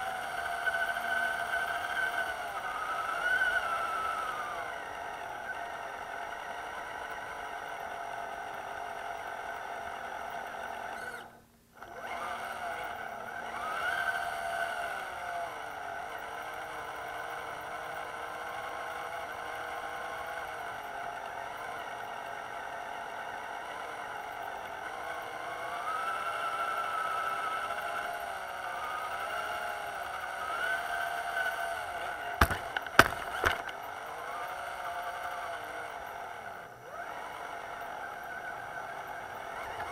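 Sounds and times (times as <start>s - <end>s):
rc truck electric motor whining: 0.0s - 39.9s
sharp knocks: 32.4s - 33.7s.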